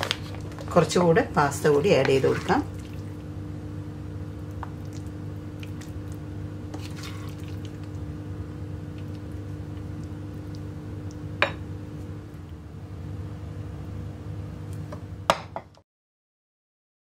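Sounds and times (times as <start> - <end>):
steady low hum: 0.0 - 15.8
wet squishing of pasta: 2.0 - 3.3, 4.4 - 8.2, 8.8 - 11.3.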